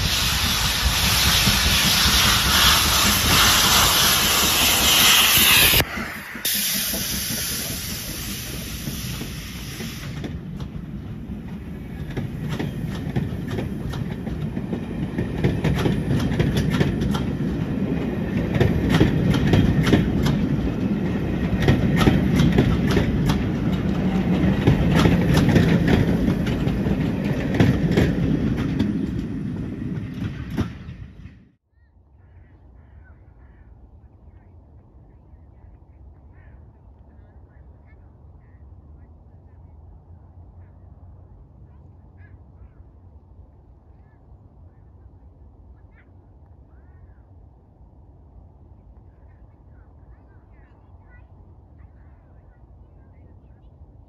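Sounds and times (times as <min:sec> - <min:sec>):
steam locomotive hissing: 0:00.0 - 0:31.2
train coaches rumbling past: 0:00.0 - 0:31.6
wheels clicking over rail joints: 0:01.4 - 0:31.2.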